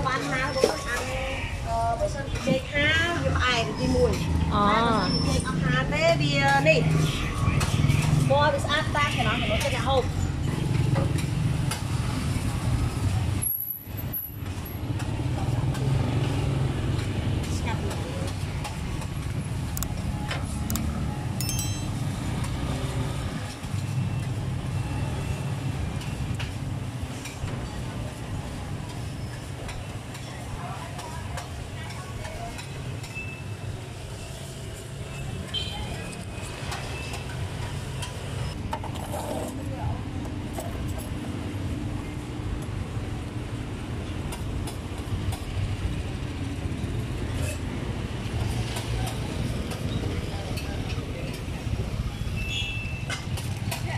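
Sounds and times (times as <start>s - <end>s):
street traffic rumble: 0.0s - 53.9s
high ringing clink: 21.4s - 22.3s.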